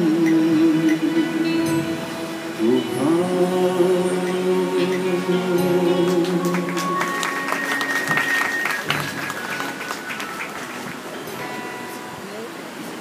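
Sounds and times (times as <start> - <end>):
man singing: 0.0 - 7.2
instrumental accompaniment: 0.0 - 12.8
audience applause: 6.0 - 11.3.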